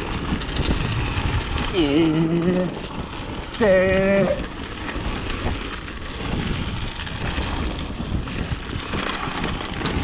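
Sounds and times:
bike rumbling over trail: 0.0 - 10.0
wind on microphone: 0.0 - 10.0.

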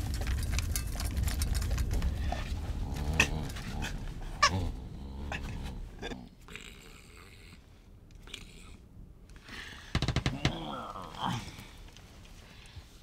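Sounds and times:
dog eating clicks and rattles: 0.0 - 2.2.

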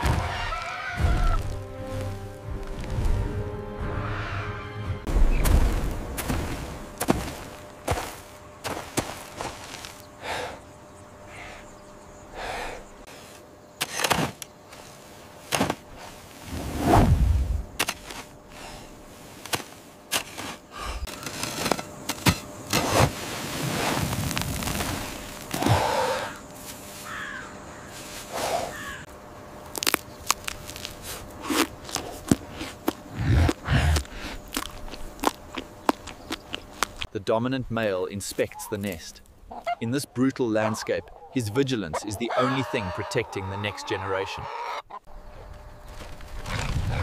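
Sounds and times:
rush of flung dirt: 5.1 - 10.1, 13.1 - 28.3
hands scraping dry earth: 5.3 - 10.6, 13.0 - 29.0, 29.6 - 37.1
teeth crunching raw root: 29.6 - 37.1.

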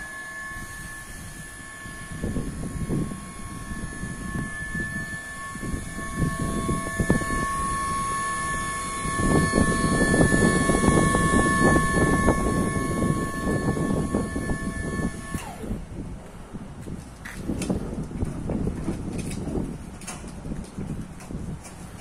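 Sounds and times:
hydraulic pump motor whining: 0.0 - 16.4.

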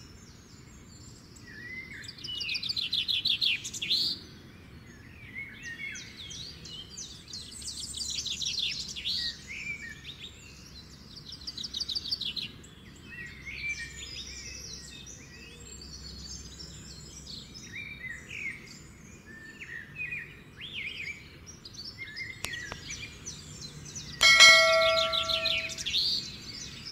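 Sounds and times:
notification bell chime: 24.2 - 25.8.

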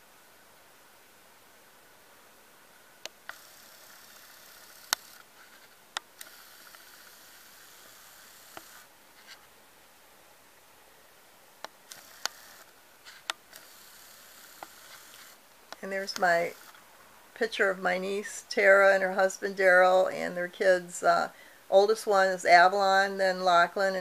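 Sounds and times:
faint steady hiss: 0.0 - 24.0.

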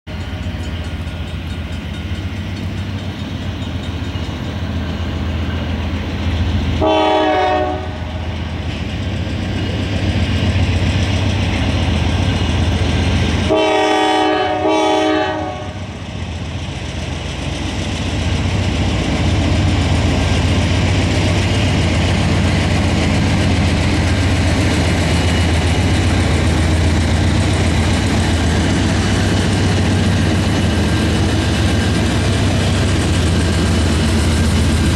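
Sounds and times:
diesel locomotive engines rumbling: 0.1 - 34.9
locomotive horn blast: 6.8 - 8.3, 13.5 - 15.9.

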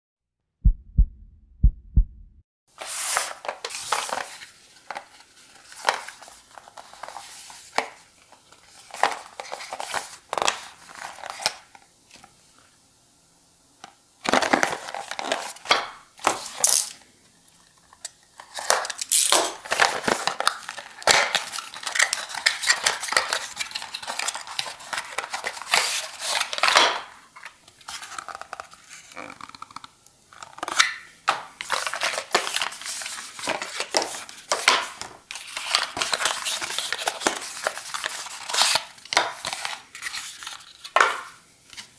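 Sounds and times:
low thumps: 0.6 - 2.4
cardboard box crinkling: 19.6 - 26.8, 31.6 - 34.7, 35.3 - 41.0.

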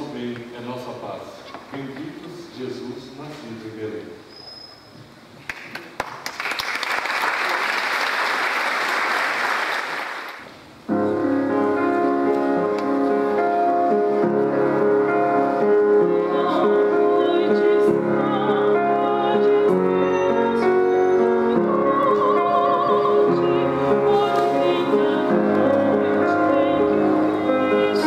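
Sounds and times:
audience applauding: 5.4 - 10.4
piano playing: 10.8 - 28.0
choir singing: 15.6 - 28.0.

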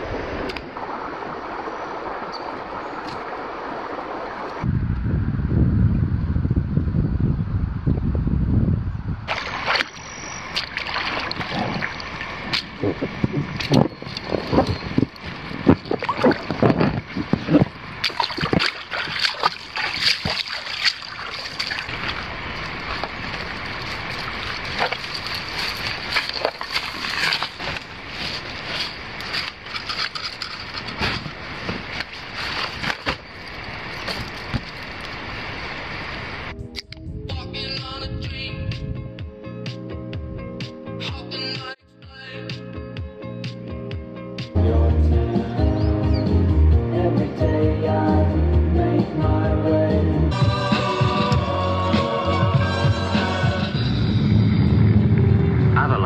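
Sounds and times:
wind rumble on microphone: 0.0 - 39.3, 53.5 - 56.0
water splashing from paddling: 9.3 - 36.4.

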